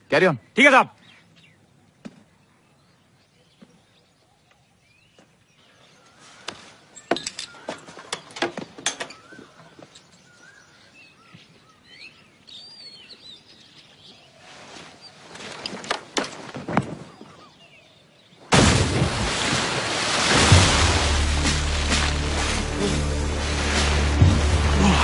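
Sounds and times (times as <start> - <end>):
birds chirping: 0.0 - 18.5.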